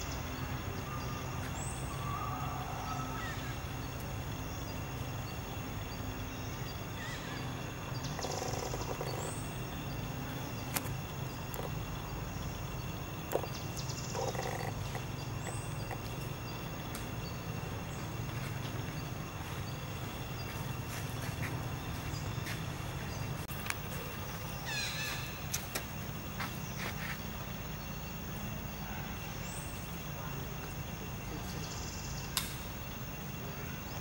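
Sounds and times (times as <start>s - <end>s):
mid-pitched calls: 6.9s - 16.7s.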